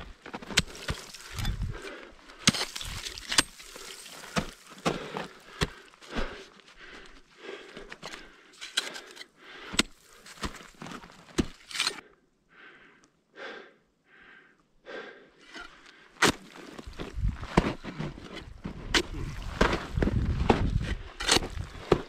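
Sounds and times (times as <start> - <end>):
ice tools striking ice: 0.4 - 1.7, 2.4 - 5.0
heavy breathing: 0.5 - 2.6, 3.6 - 10.7, 11.9 - 16.2.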